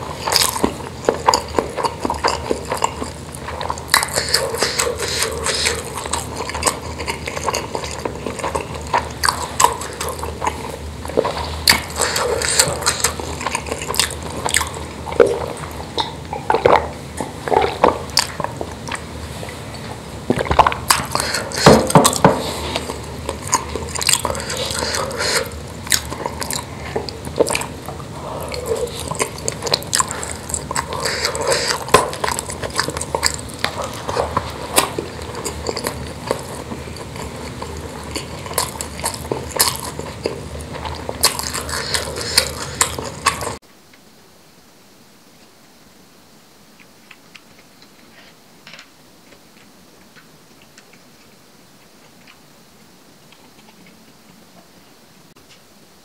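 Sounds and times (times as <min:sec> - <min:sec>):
chewing: 0:00.0 - 0:43.6, 0:53.2 - 0:54.8
wet mouth clicks: 0:00.2 - 0:19.1, 0:20.3 - 0:43.6.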